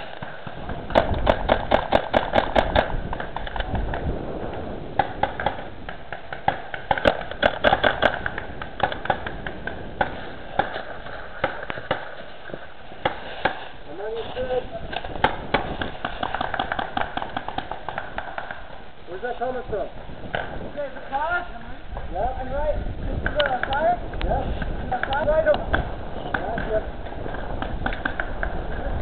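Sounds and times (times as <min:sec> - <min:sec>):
paintball markers firing: 0:00.0 - 0:04.1, 0:05.0 - 0:13.7, 0:14.9 - 0:18.7, 0:24.6 - 0:28.8.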